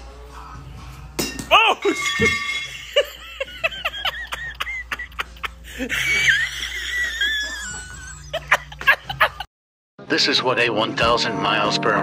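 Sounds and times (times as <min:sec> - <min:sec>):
high-pitched wavering laugh: 0:01.9 - 0:09.5
people laughing: 0:02.6 - 0:09.5.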